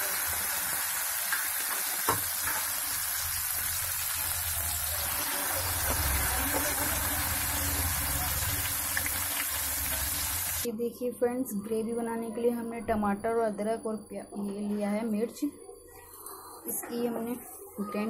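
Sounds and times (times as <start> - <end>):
dumplings sizzling in hot oil: 0.0 - 10.7.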